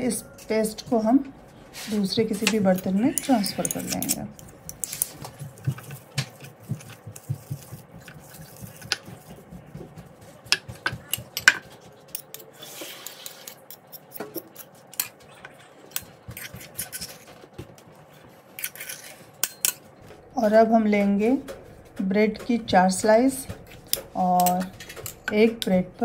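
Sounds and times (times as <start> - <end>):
metal spoon scraping mortar: 1.8 - 9.1, 10.8 - 17.3, 18.6 - 19.8.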